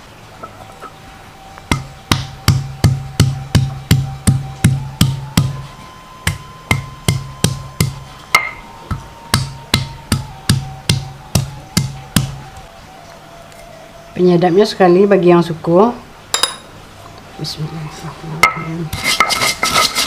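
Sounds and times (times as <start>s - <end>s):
stone pestle pounding on stone slab: 1.7s - 5.6s, 6.2s - 12.4s.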